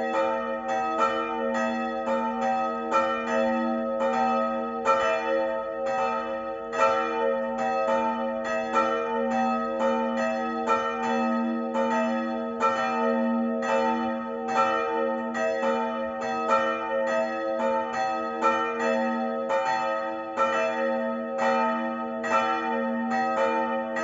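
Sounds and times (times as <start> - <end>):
church bells ringing: 0.0 - 24.0.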